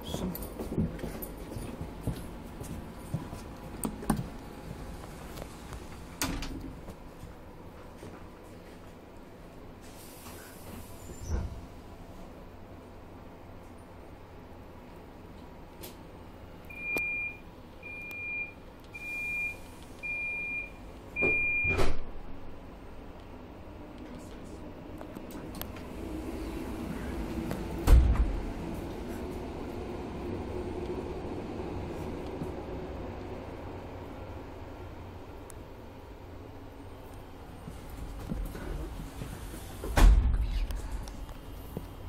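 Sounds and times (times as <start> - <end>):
electronic warning beeps: 16.7 - 21.8.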